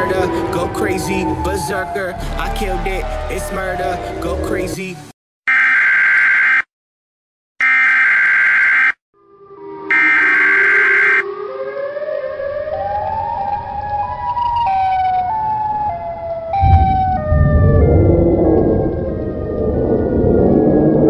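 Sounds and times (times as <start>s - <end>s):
deep rumbling noise: 0.0s - 4.7s, 16.6s - 21.0s
electronic siren wail: 0.0s - 4.7s, 7.6s - 21.0s.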